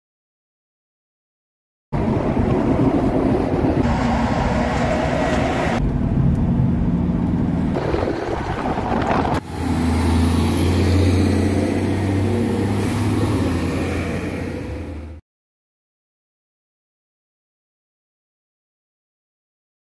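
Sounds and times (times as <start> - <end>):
tyre road noise: 1.9 - 15.2
heavy trucks passing: 2.0 - 15.2.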